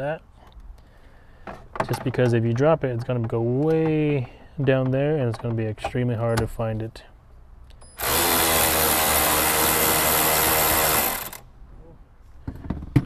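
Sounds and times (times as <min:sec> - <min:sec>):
cordless screwdriver spinning: 0:08.0 - 0:11.4.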